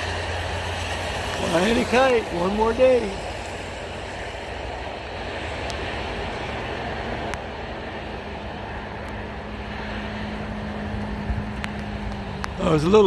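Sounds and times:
traffic on wet pavement: 0.0s - 13.0s.

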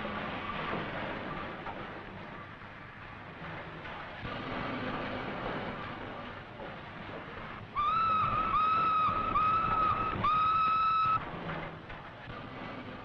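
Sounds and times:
steam engine hiss and rumble: 0.0s - 13.0s
steam locomotive whistle blasts: 7.8s - 11.2s.

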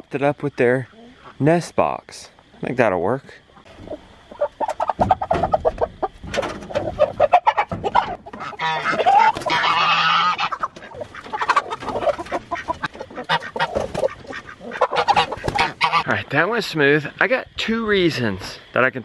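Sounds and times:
chickens squawking and clucking: 0.6s - 1.5s, 3.2s - 17.1s
wings flapping and rustling: 4.7s - 16.0s.

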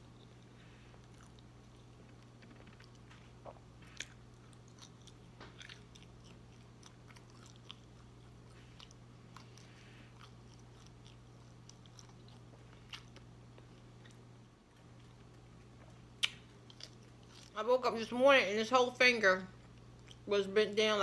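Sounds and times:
biting and chewing sausage: 0.0s - 17.6s, 19.6s - 20.3s
steady low hum: 0.0s - 21.0s.

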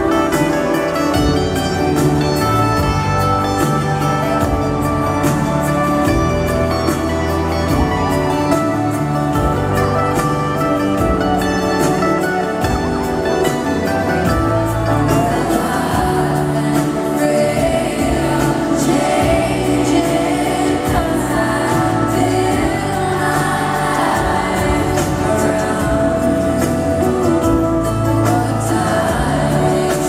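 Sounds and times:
acoustic guitar: 0.0s - 30.0s
plucked banjo: 0.0s - 30.0s
women singing in harmony: 15.1s - 30.0s.

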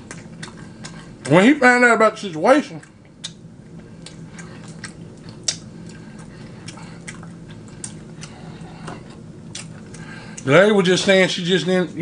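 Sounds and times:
chewing and lip smacking: 0.0s - 1.5s, 2.6s - 10.5s
low steady hum: 0.0s - 12.0s.

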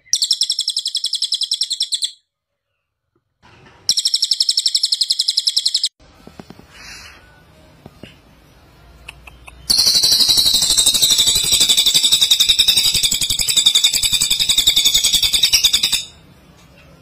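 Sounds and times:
bird rapid rattle: 9.7s - 16.0s.

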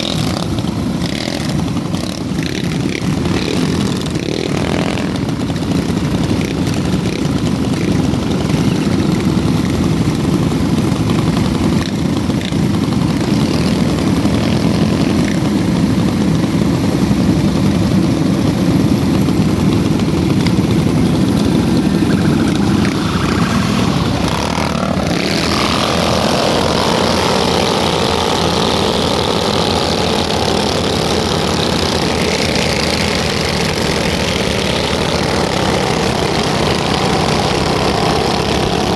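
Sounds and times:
small motorcycle engines revving: 0.0s - 38.9s.

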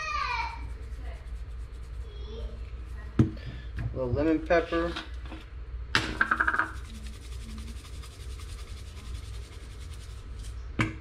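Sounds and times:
low hum: 0.4s - 4.1s, 5.4s - 11.0s
spice shaker rattling: 6.2s - 10.6s.

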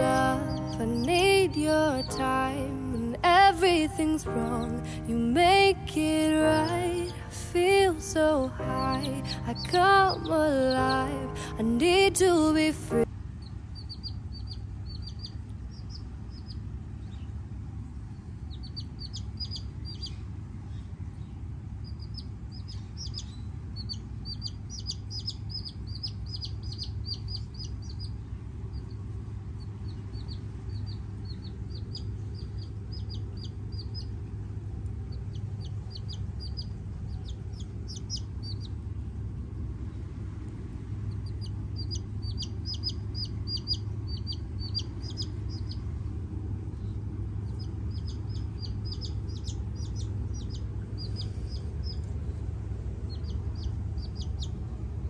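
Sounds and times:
chick peeping: 0.0s - 17.3s, 18.4s - 20.9s, 21.8s - 38.8s, 41.1s - 45.9s, 46.7s - 52.4s, 53.0s - 54.6s
low rumble: 13.8s - 55.0s.

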